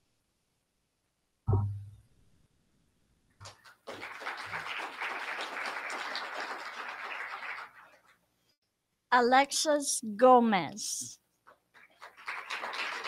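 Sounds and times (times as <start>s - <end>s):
audience applauding: 3.4s - 8.2s, 11.7s - 13.0s.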